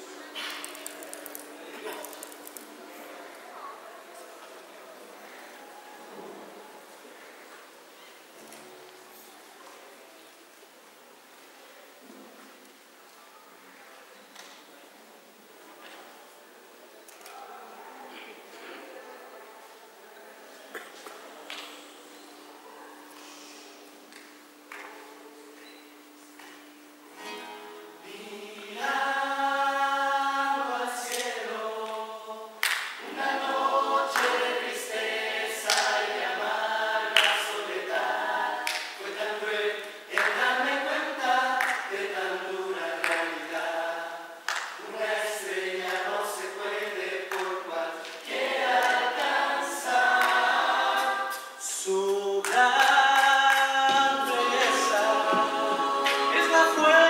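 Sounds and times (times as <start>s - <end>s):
acoustic guitars: 0.0s - 4.4s, 20.7s - 36.5s, 47.1s - 57.0s
group singing in harmony: 27.2s - 57.0s.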